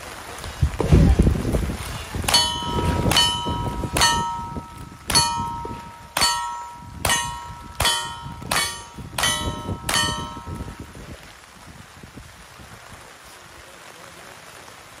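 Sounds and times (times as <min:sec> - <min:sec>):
ringing ping of steel target: 0:02.3 - 0:11.1.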